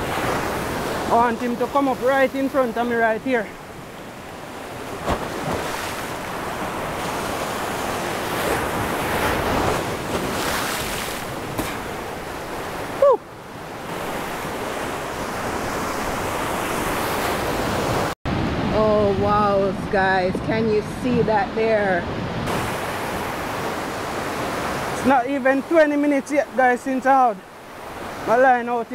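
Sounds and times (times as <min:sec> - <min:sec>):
surf breaking over rocks: 0:00.0 - 0:13.0.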